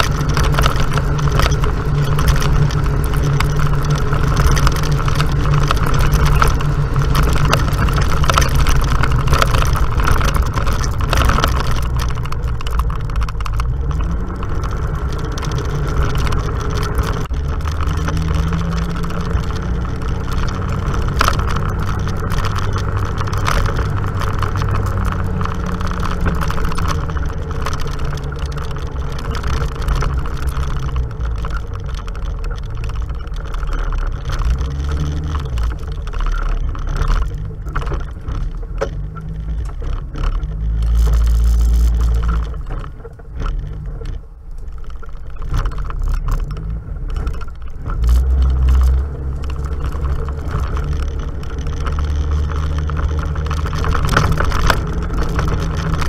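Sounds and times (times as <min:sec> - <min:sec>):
off-road vehicle engine running: 0:00.0 - 0:56.0
vehicle bumps and rattles: 0:00.0 - 0:56.0.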